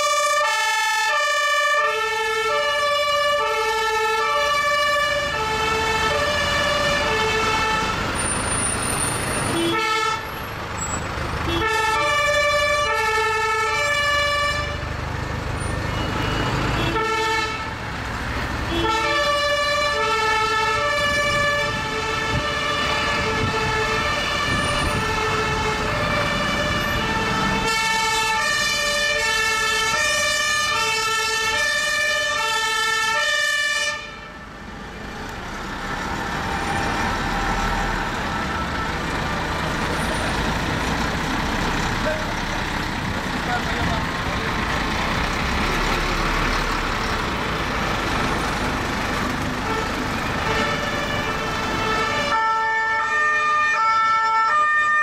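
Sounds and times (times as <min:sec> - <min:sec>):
two-tone sirens: 0:00.0 - 0:35.0, 0:36.0 - 0:48.4, 0:49.3 - 0:55.0
truck engine running: 0:04.9 - 0:30.5, 0:34.6 - 0:52.2.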